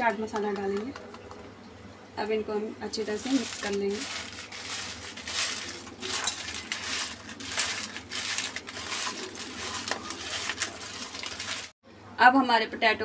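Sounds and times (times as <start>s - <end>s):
fries scraping on metal plate: 2.9s - 11.8s.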